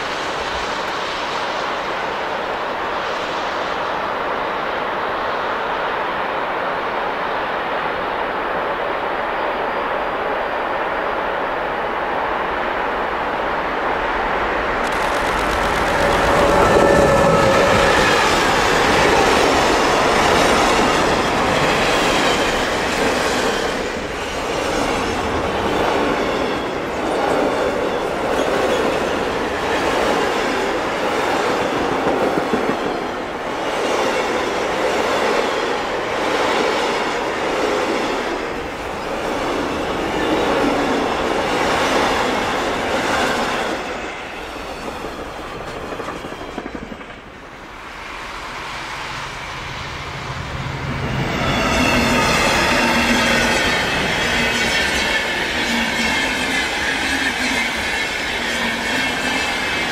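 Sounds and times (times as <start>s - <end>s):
freight train rumbling past: 0.0s - 59.9s
train wheels clattering: 14.8s - 47.4s.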